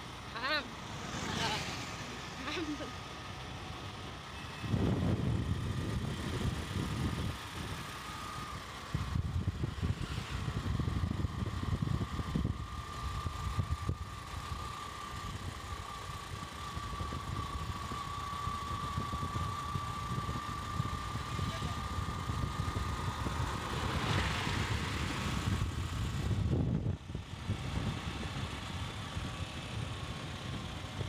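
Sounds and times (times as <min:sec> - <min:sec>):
motorcycle whine: 0:00.0 - 0:31.0
wind rumbling on microphone: 0:04.6 - 0:07.9, 0:08.8 - 0:15.6, 0:16.2 - 0:31.0.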